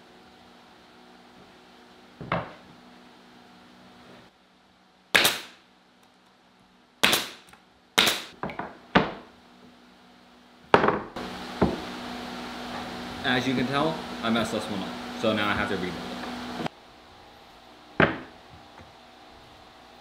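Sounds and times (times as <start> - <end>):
nail gun firing into wood: 5.1 - 5.6, 7.0 - 8.4.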